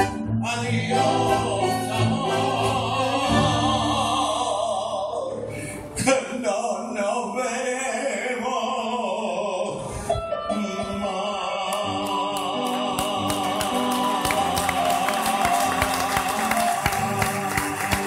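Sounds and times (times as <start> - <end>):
tango with bandoneon and violins: 0.0 - 4.8.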